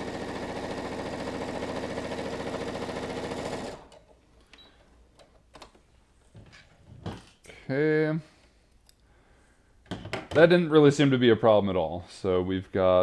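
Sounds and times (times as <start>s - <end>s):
sewing machine stitching leather: 0.0s - 4.1s.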